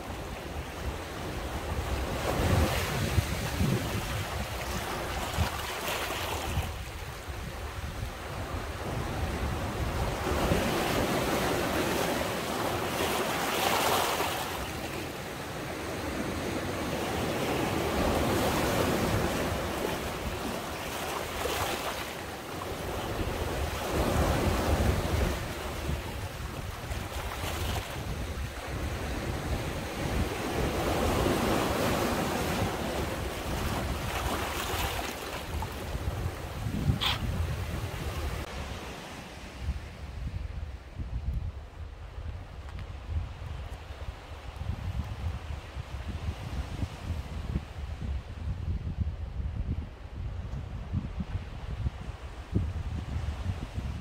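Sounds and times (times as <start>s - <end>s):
wind buffeting microphone: 0.0s - 14.4s, 16.0s - 38.8s, 39.4s - 54.0s
sea waves washing: 0.0s - 39.9s.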